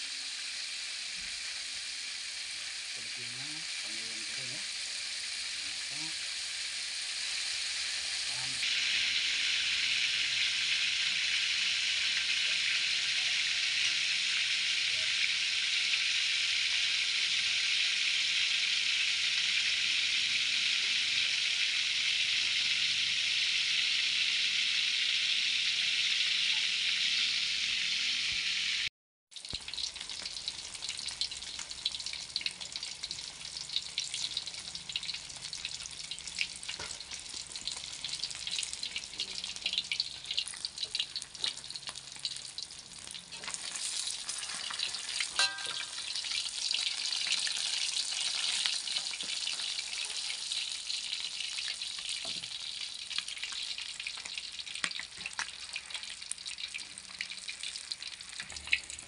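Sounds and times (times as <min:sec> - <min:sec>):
steady hiss: 0:00.0 - 0:13.3
fish deep-frying in oil: 0:00.0 - 0:59.0.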